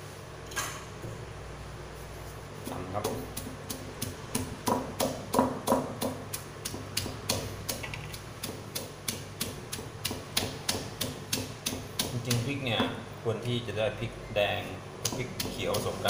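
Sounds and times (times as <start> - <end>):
stone pestle pounding in mortar: 2.8 - 13.0, 15.0 - 16.0.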